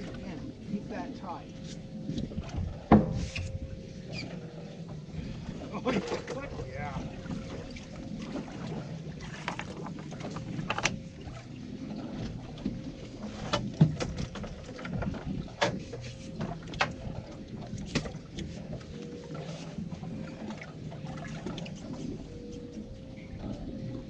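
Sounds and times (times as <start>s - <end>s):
boat engine idling: 0.0s - 24.0s.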